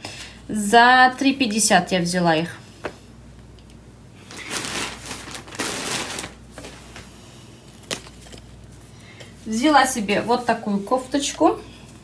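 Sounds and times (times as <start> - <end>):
shopping bag rustling: 4.2 - 7.2.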